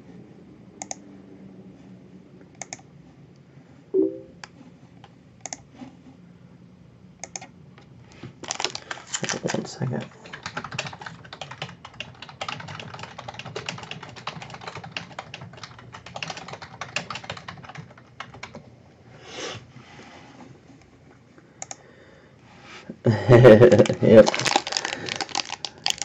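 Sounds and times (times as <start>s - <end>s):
typing on computer keyboard: 8.5s - 18.7s, 23.8s - 26.0s.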